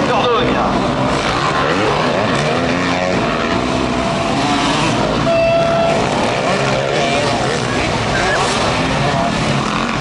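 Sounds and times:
motocross engines revving: 0.0 - 10.0
horn blast: 5.2 - 6.5.

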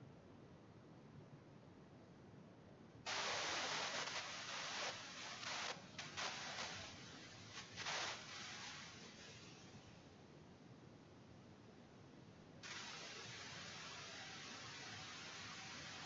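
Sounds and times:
faint background hiss: 0.0 - 16.0
rustling hissing noise: 3.1 - 10.2, 12.6 - 16.0.

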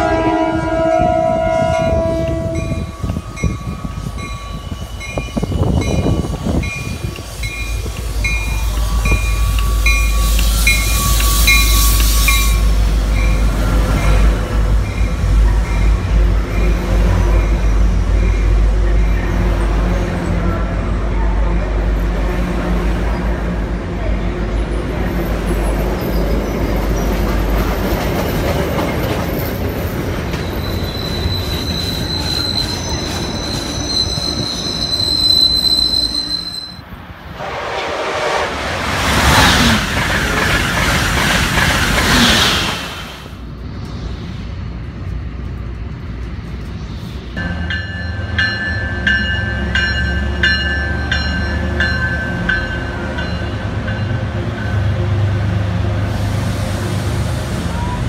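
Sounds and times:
commuter train rumble with whine: 0.0 - 58.0
train rushing past: 0.0 - 58.0
train wheels squealing: 2.6 - 20.6, 25.1 - 27.6, 28.2 - 36.9.

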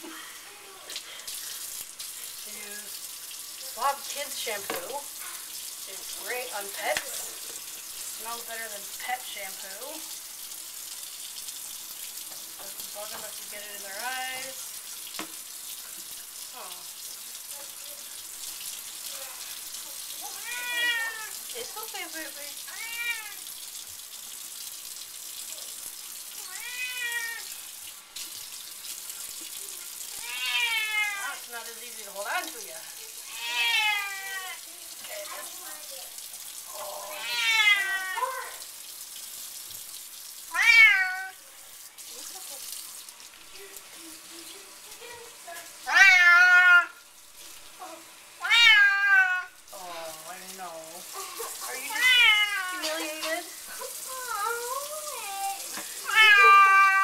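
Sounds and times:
tap running into sink: 4.0 - 5.0, 6.7 - 8.0, 15.0 - 16.2
cat meowing: 20.2 - 21.4, 22.7 - 23.4, 26.4 - 27.5, 30.2 - 31.4, 33.2 - 34.6, 36.8 - 38.6, 40.5 - 41.4, 45.9 - 47.0, 48.4 - 49.6, 51.9 - 52.9, 56.0 - 57.0.

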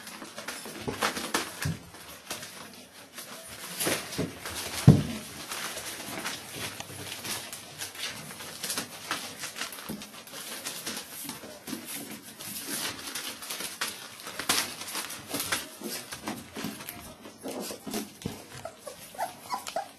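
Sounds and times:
newspaper rustling and crinkling: 0.0 - 19.9
puppies whimpering: 17.4 - 19.9.

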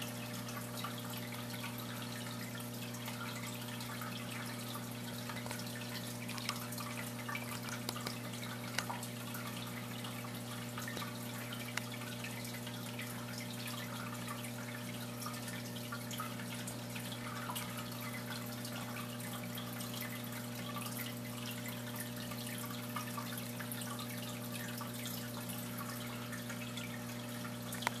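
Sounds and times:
aquarium air bubbles popping: 0.0 - 28.0.

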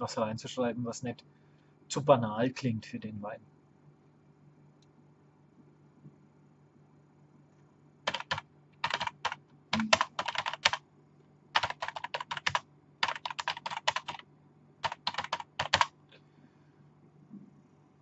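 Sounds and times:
typing on computer keyboard: 8.1 - 10.8, 11.6 - 14.2, 14.8 - 15.9.

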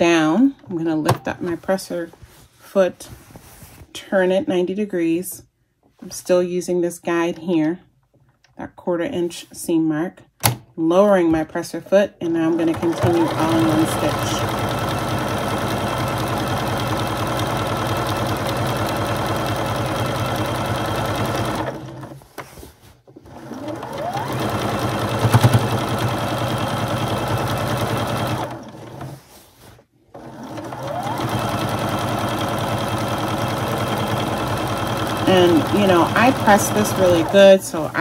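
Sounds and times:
sewing machine running: 12.6 - 22.2, 23.2 - 29.2, 30.1 - 38.0.

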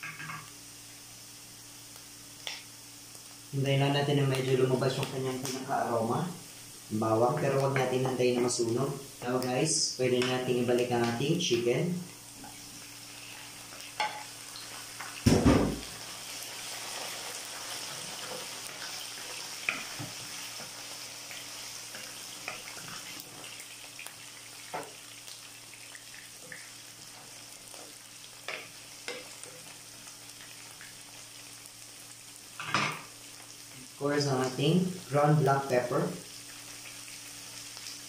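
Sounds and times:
chicken sizzling in a frying pan: 0.0 - 38.0
loud thump: 15.2 - 15.9.

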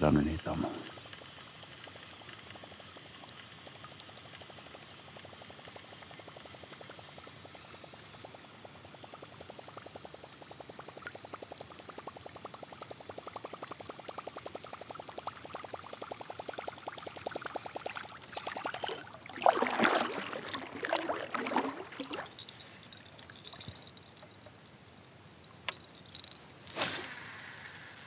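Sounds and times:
lure plopping gurgle on water: 3.7 - 24.5.

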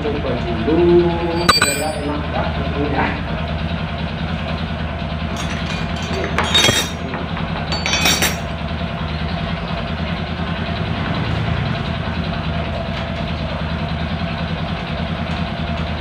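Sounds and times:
metallic clinks: 1.3 - 2.1, 5.4 - 7.1, 7.7 - 8.5.

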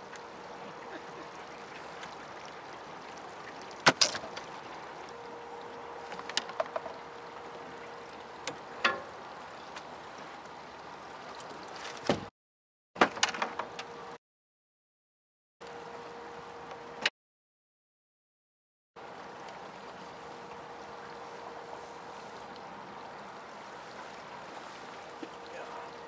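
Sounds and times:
faint steady hum: 0.0 - 11.3, 15.6 - 17.1, 19.0 - 26.0
fast river current rushing: 0.0 - 11.9, 19.0 - 26.0.

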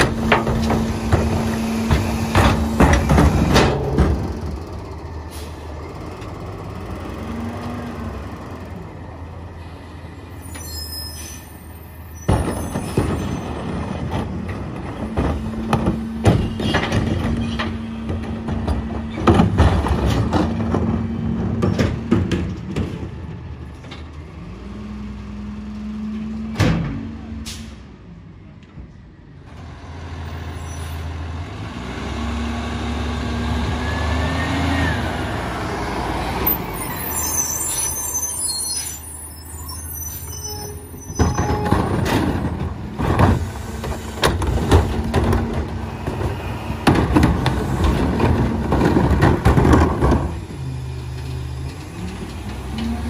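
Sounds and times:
bangs and clatter: 0.0 - 4.5, 12.2 - 23.2, 41.1 - 50.4
garbage truck diesel engine: 0.0 - 53.0.

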